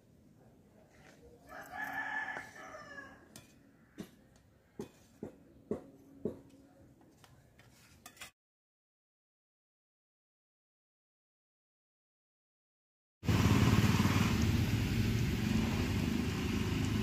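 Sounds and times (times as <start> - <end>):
rooster crowing: 1.5 - 3.3.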